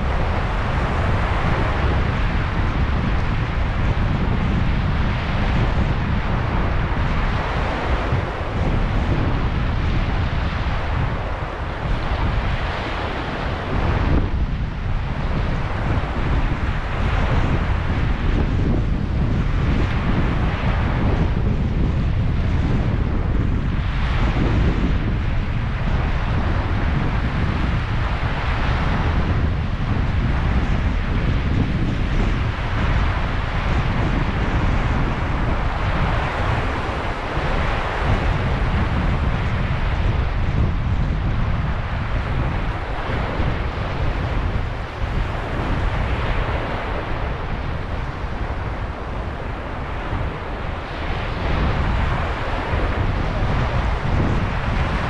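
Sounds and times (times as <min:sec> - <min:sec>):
surf washing onto shore: 0:00.0 - 0:55.0
wind buffeting microphone: 0:00.0 - 0:55.0
waves washing onto pebble beach: 0:30.2 - 0:55.0.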